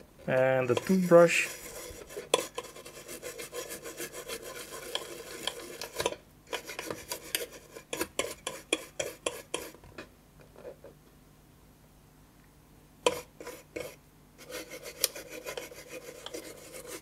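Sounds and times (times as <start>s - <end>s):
toothbrush scrubbing circuit board: 0.6s - 9.8s, 13.1s - 17.0s.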